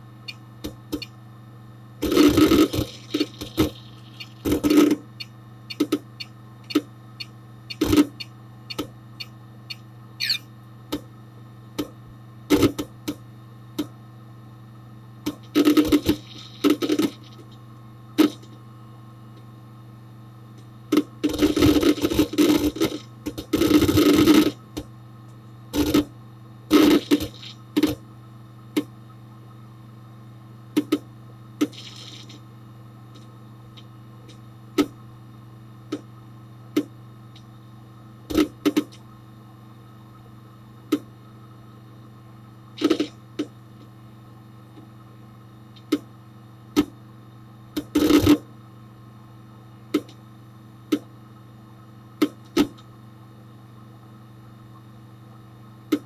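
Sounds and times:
hard disk seek clicks: 0:00.0 - 0:01.2, 0:02.0 - 0:11.1
computer hum: 0:00.0 - 0:56.0.

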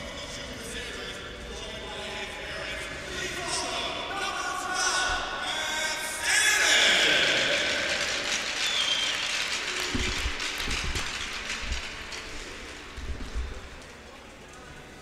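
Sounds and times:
crowd applause: 0:06.4 - 0:15.0
low thuds: 0:09.9 - 0:13.8.

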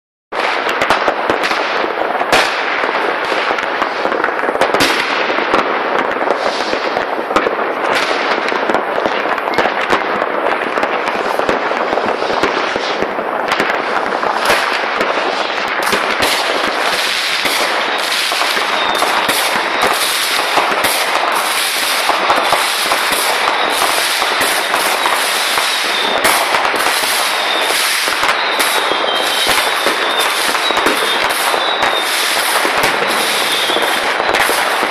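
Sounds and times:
fireworks crackling and banging: 0:00.3 - 0:34.9
high firework whistle: 0:10.8 - 0:34.9.

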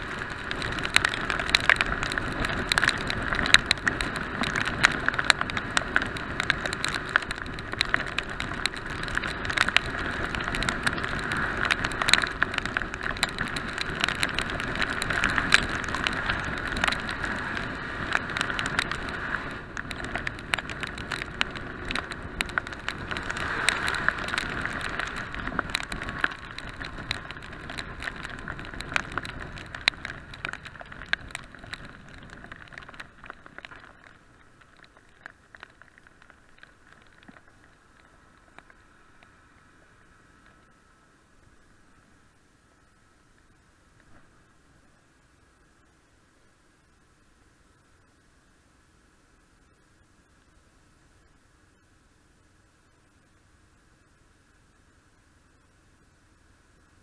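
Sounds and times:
wind noise: 0:00.0 - 0:40.7
raindrops ticking on camera housing: 0:00.0 - 0:48.2
motorcycle road noise on wet road: 0:00.0 - 0:49.2.

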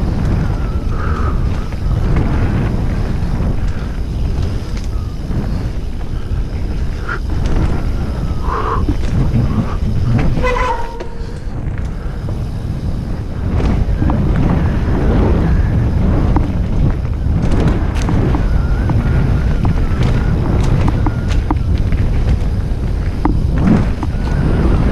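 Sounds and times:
bike clicks and rattles: 0:00.0 - 0:24.9
wind buffeting microphone: 0:00.0 - 0:24.9
short squeaks: 0:09.4 - 0:11.5.

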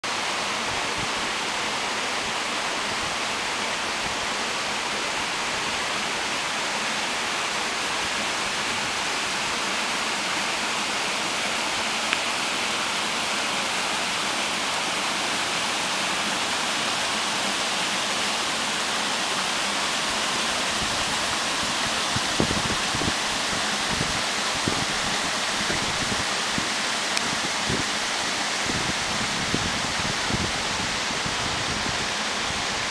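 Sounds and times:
waterfall and stream rushing: 0:00.0 - 0:32.9.

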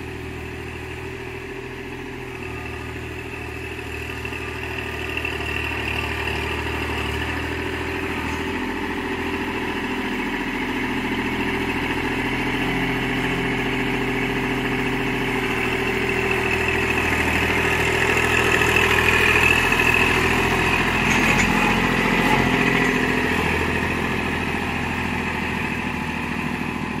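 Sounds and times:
tractor diesel engine passing: 0:00.0 - 0:27.0.

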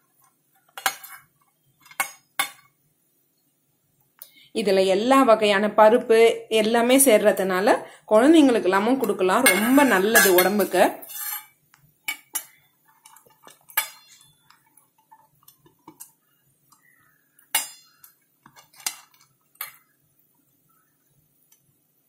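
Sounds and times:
metal plates clinking: 0:09.0 - 0:16.2, 0:17.4 - 0:19.8.

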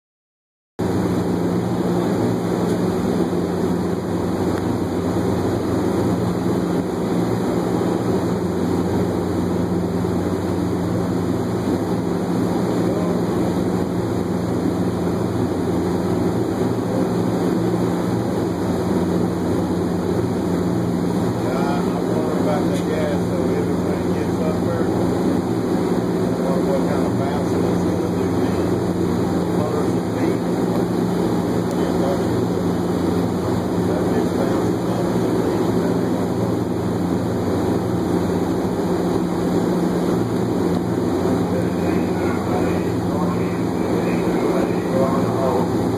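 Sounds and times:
heavy machinery drone: 0:00.8 - 0:45.9.

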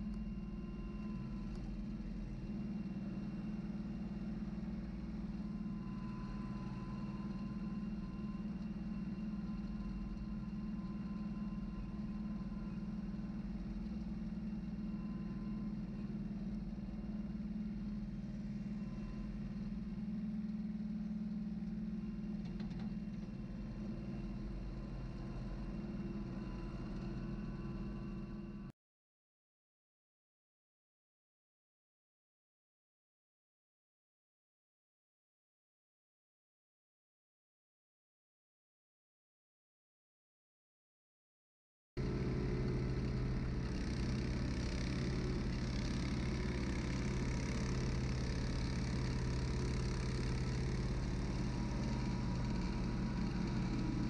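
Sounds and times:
tractor diesel engine running: 0:00.0 - 0:28.6, 0:42.0 - 0:54.0.

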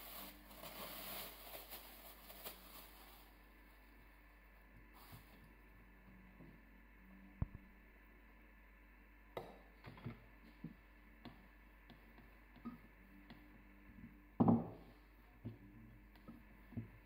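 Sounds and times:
flour sifting through strainer: 0:00.0 - 0:03.9.

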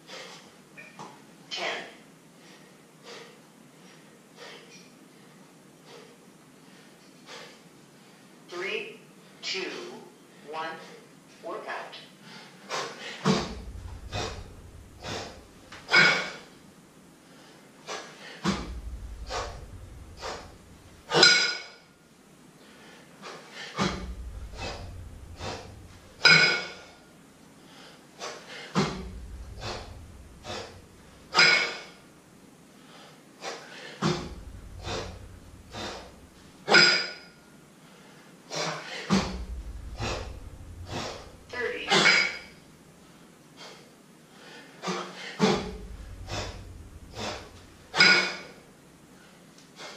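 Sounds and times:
man breathing hard: 0:00.0 - 0:00.6, 0:02.3 - 0:08.4, 0:12.2 - 0:21.2, 0:22.6 - 0:32.1, 0:32.7 - 0:36.8, 0:42.3 - 0:49.9
man exhaling forcefully: 0:12.2 - 0:16.6, 0:17.2 - 0:21.3, 0:22.6 - 0:32.0, 0:32.8 - 0:37.0, 0:37.9 - 0:43.8, 0:44.4 - 0:48.6.

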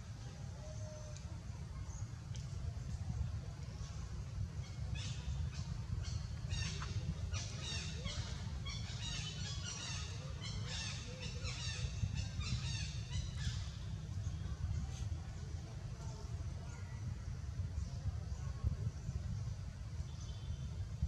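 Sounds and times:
steady low rumble: 0:00.0 - 0:21.0
birds chirping: 0:04.6 - 0:14.6.

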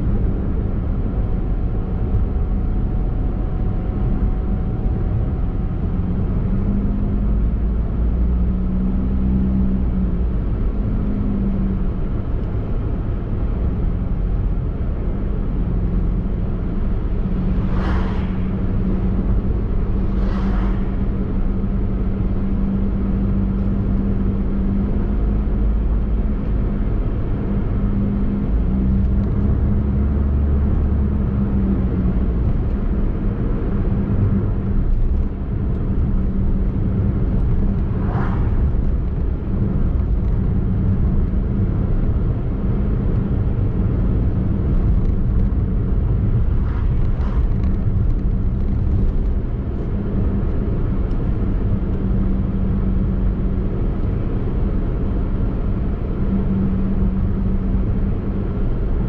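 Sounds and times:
car engine and tyre rumble: 0:00.0 - 0:59.0
steady low hum: 0:32.4 - 0:59.0.

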